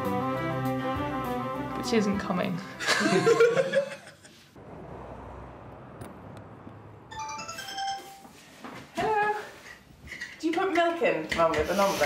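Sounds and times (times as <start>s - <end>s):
high ringing chimes: 7.1s - 8.4s.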